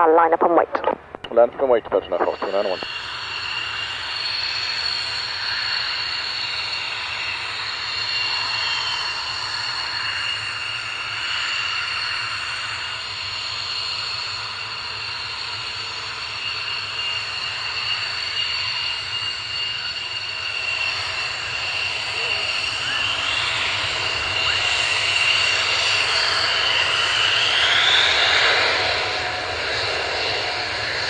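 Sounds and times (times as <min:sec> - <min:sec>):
jet engine whine: 0:00.0 - 0:31.0.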